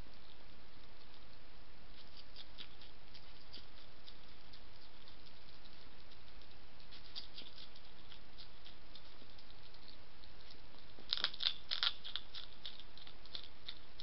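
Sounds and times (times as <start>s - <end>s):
hedgehog chewing and crunching: 0.0s - 14.0s.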